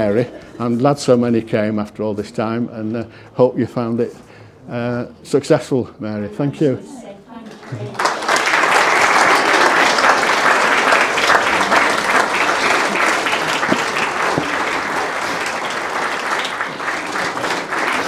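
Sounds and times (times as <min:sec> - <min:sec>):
audience applauding: 0:07.5 - 0:18.0.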